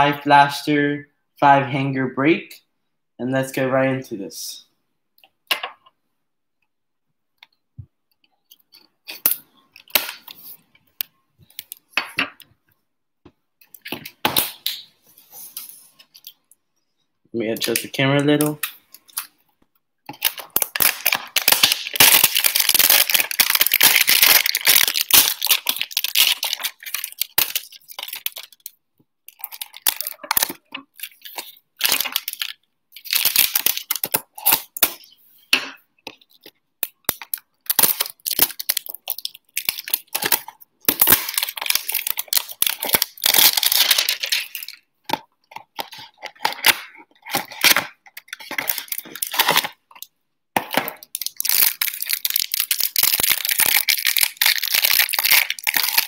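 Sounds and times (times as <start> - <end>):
plastic shrink-wrap tearing: 20.1 - 28.7, 29.3 - 35.1, 37.1 - 44.8, 45.6 - 49.8, 50.9 - 56.0.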